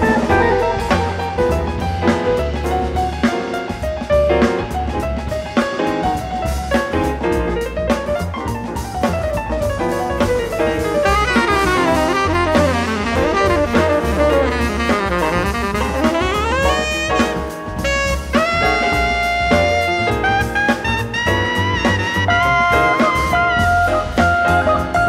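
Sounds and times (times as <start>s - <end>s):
saxophone: 0.0s - 1.8s, 10.2s - 25.0s
double bass: 0.0s - 25.0s
drum kit: 0.0s - 25.0s
jazz ensemble playing: 0.0s - 25.0s
piano: 0.0s - 25.0s.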